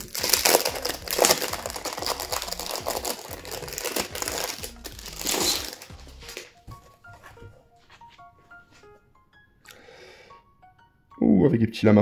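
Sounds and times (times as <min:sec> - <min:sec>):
plastic wrap crinkling: 0:00.0 - 0:06.6
soft plucked background music: 0:00.0 - 0:12.0.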